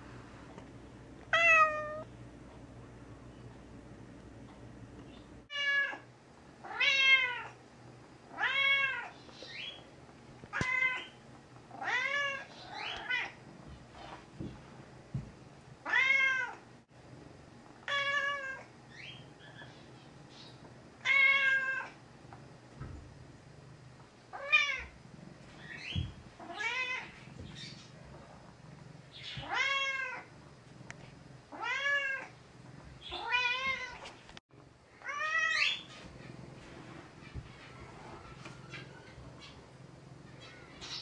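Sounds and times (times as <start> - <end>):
cat meowing: 1.3 - 2.1, 6.6 - 7.6, 29.2 - 30.3, 33.1 - 34.0.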